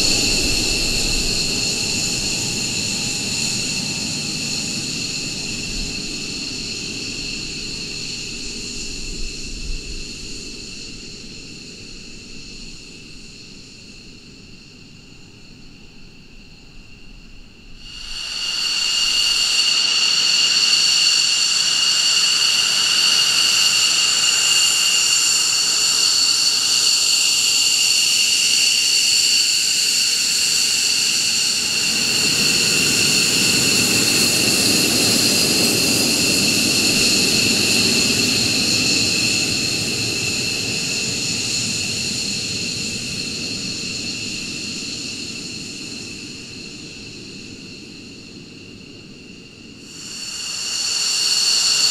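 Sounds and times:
jet engines whining: 0:17.9 - 0:26.3.

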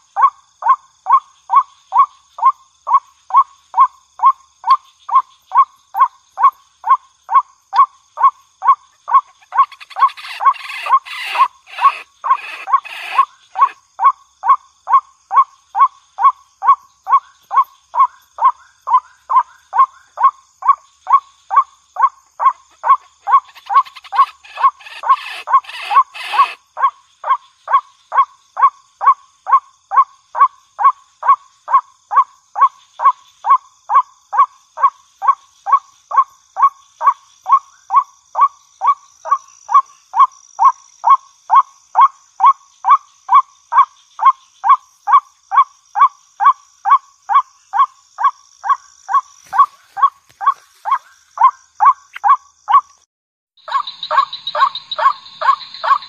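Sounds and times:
bird calling harshly: 0:09.1 - 0:13.8, 0:22.4 - 0:26.6, 0:49.1 - 0:52.9, 0:53.6 - 0:56.0.

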